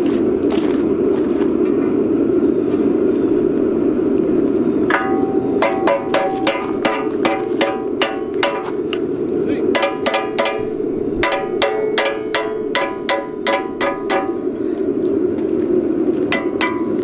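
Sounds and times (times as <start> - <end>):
steady rushing noise: 0.0 - 17.0
hammer striking metal rod: 4.9 - 8.8, 9.7 - 14.5, 16.3 - 17.0.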